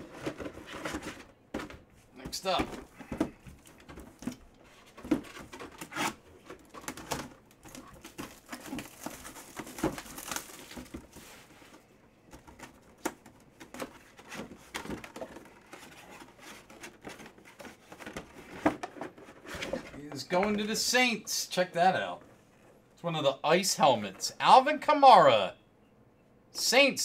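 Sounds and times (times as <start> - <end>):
box clicks and knocks: 0.0 - 5.9
shrink wrap crinkling and tearing: 7.7 - 10.9.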